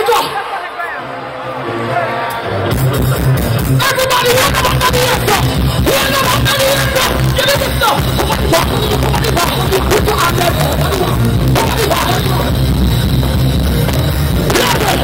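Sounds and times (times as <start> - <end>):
dancehall music through pa system: 0.0 - 15.0.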